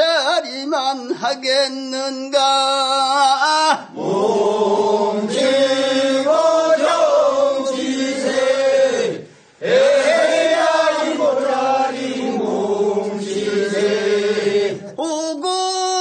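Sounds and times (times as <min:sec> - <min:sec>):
group chanting in unison: 0:03.7 - 0:15.0.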